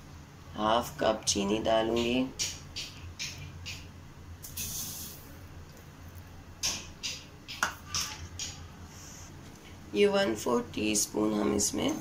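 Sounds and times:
sugar pouring hiss: 4.4s - 5.4s.

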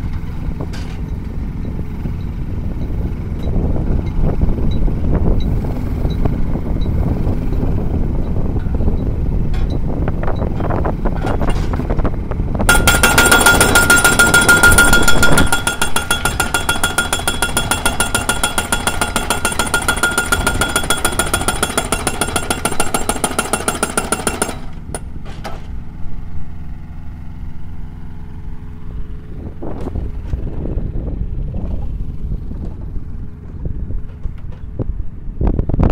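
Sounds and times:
engine running: 0.0s - 35.9s
post driver pounding metal post: 10.4s - 11.8s, 12.7s - 25.7s.

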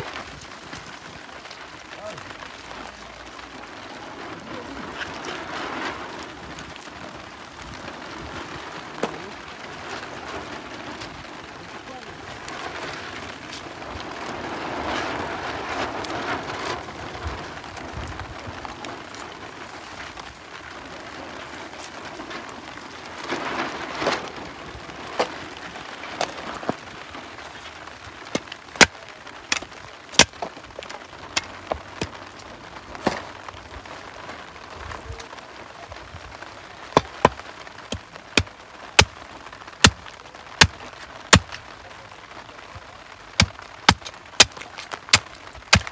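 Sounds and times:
rustling handling noise: 12.4s - 41.7s.

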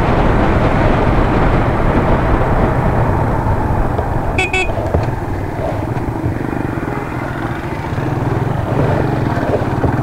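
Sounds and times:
wind noise: 0.0s - 10.0s
motorcycle engine running: 1.8s - 10.0s
short beeps: 4.4s - 4.8s.

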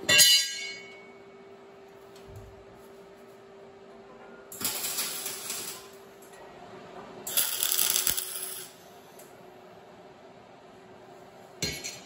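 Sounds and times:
welder hum: 4.6s - 6.0s, 7.3s - 9.4s
welding arc crackling: 4.6s - 6.0s, 7.3s - 8.8s.

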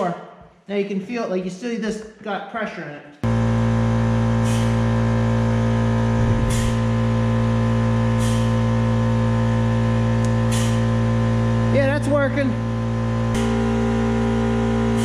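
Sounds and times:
steady machine hum: 3.2s - 15.0s
grease pump air hiss: 4.4s - 4.9s, 8.1s - 8.8s, 10.4s - 10.9s.

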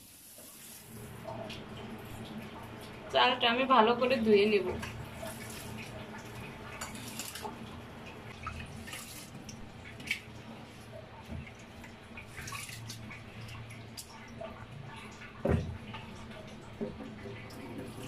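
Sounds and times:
water splashes and drips: 0.0s - 18.0s
hands washing rice in water: 4.8s - 15.4s.

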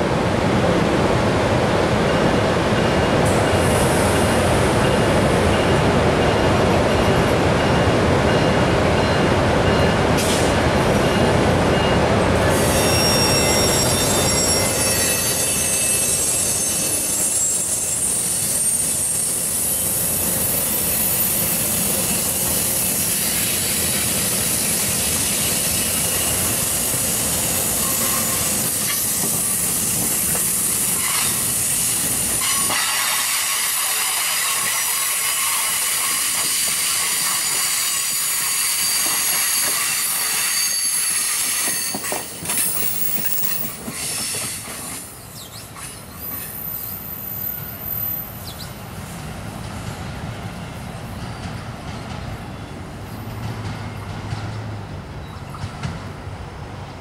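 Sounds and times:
train coaches rumbling: 0.0s - 57.0s
high-pitched wheel squeal: 12.6s - 21.6s, 38.0s - 44.6s
hiss: 19.3s - 42.2s, 43.7s - 45.0s.

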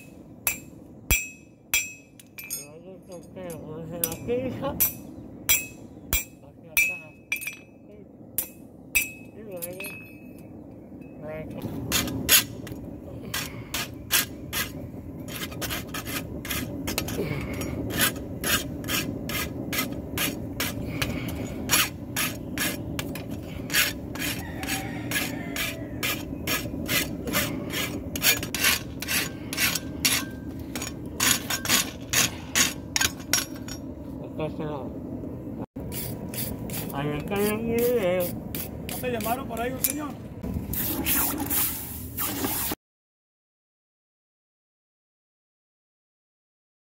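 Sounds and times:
low background hum: 0.0s - 40.6s
file rasping on metal: 13.4s - 30.4s, 35.9s - 39.4s.

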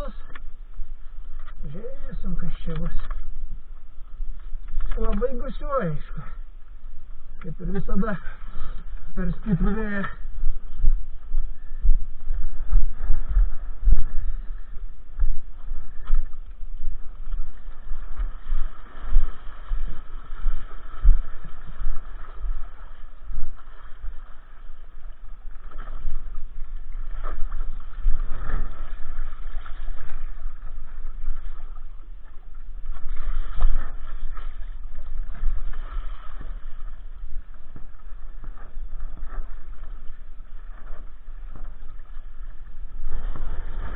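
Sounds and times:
wind buffeting microphone: 8.8s - 40.3s.

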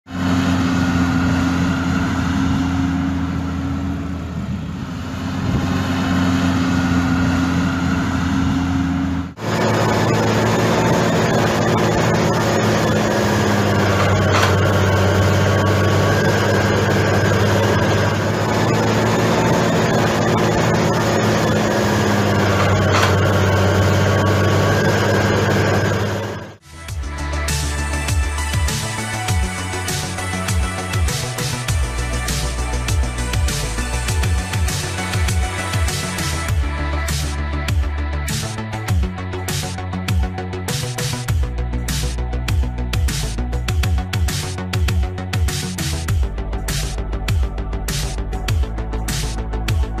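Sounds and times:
model tractor engine hum: 0.1s - 26.6s.

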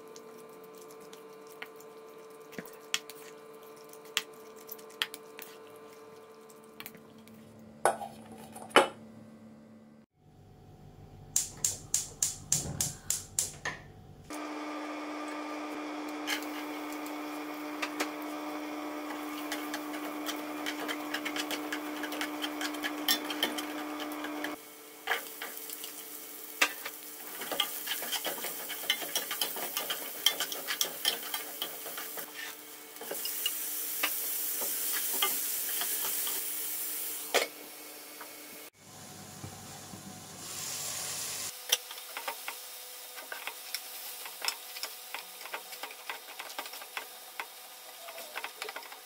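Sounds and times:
food sizzling in a pan: 14.4s - 38.8s, 39.4s - 49.0s
utensil scraping a pan: 19.2s - 25.3s, 27.4s - 32.6s.

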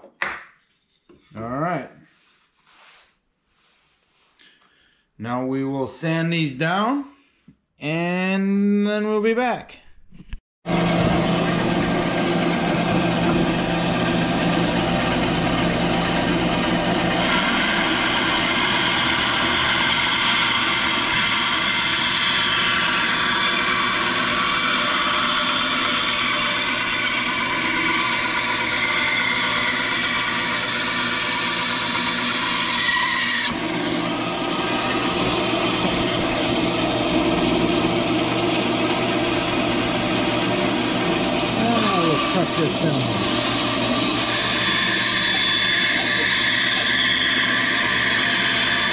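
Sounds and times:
bandsaw cutting wood: 10.7s - 48.9s.

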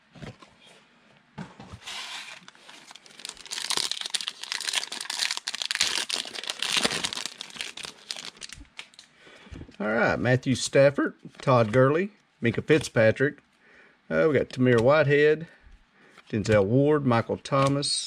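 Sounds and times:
plastic wrapper tearing and crinkling: 2.2s - 9.1s.

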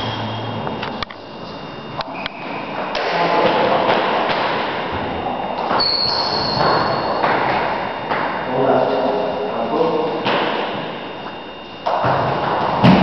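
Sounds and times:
high squeal: 0.0s - 0.8s, 1.4s - 2.8s, 5.6s - 8.6s.

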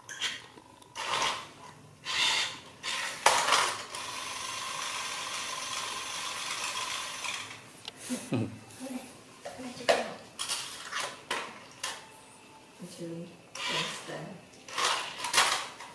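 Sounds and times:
toy car motor whirring: 1.0s - 7.6s, 13.6s - 14.1s, 14.7s - 15.7s.

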